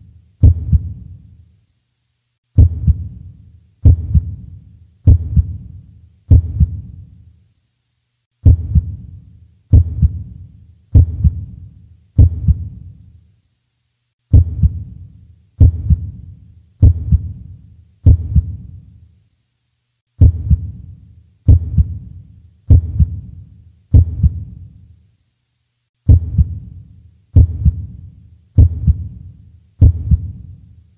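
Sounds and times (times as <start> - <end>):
heartbeat thumps: 0.4 - 1.1, 2.6 - 5.7, 6.3 - 7.0, 8.4 - 11.6, 12.2 - 12.8, 14.3 - 15.0, 15.6 - 16.2, 16.8 - 17.4, 18.0 - 18.7, 20.2 - 20.8, 21.5 - 22.1, 22.7 - 23.3, 23.9 - 24.6, 26.1 - 26.7, 27.4 - 28.0, 28.6 - 29.2, 29.8 - 30.4.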